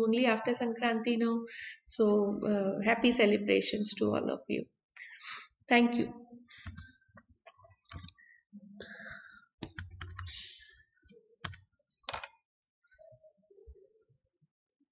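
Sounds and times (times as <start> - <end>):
keyboard and mouse clicks: 6.6 - 8.2, 9.6 - 10.5, 11.4 - 12.4.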